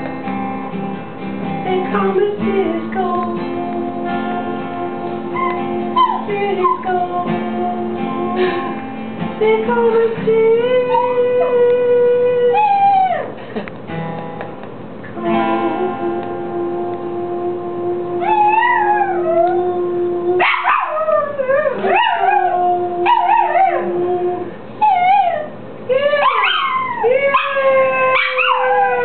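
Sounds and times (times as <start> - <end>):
dog howling: 5.4 - 7.0, 10.9 - 13.3, 18.1 - 29.0
steady held musical note: 14.2 - 18.4.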